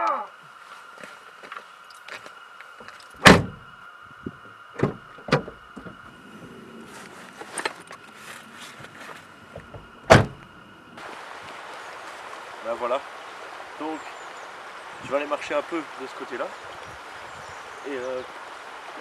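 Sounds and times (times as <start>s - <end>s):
car door slamming: 3.2s - 3.7s, 4.3s - 6.0s, 9.5s - 10.5s.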